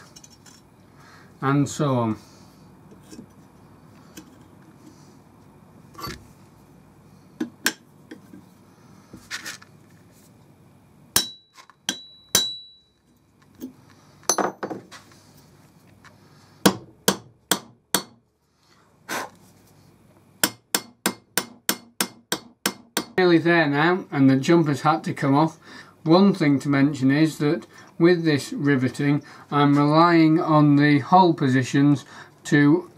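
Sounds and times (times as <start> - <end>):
hammer striking steel: 11.2 - 12.8, 16.6 - 18.2, 20.4 - 23.2
high metallic ring: 11.2 - 13.2.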